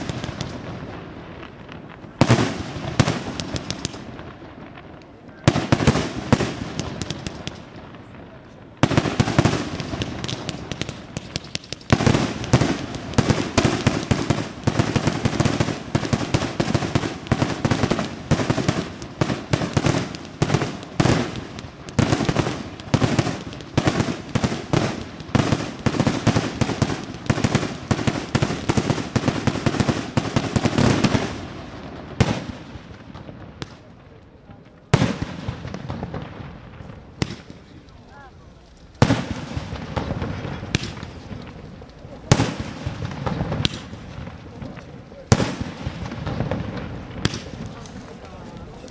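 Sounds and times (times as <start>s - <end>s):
firework bangs: 0.0s - 48.9s.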